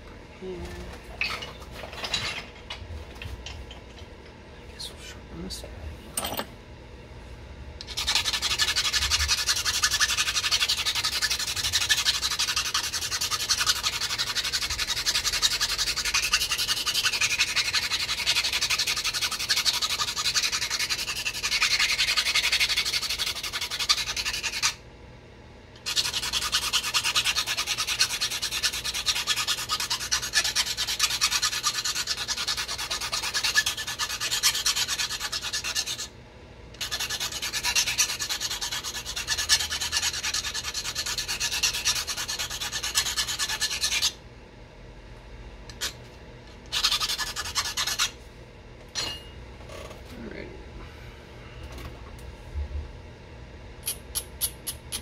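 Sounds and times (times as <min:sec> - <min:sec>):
stone rasping on stone: 0:07.8 - 0:24.8, 0:25.8 - 0:36.1, 0:36.8 - 0:44.2, 0:46.7 - 0:48.2.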